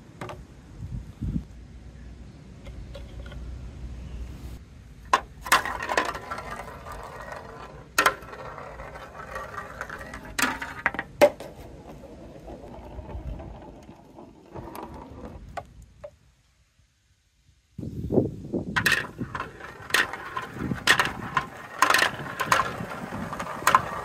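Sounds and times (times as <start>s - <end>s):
ball rolling on plastic track: 5.1s - 15.8s, 18.8s - 24.0s
ball clacking against track: 5.1s - 16.2s, 18.8s - 24.0s.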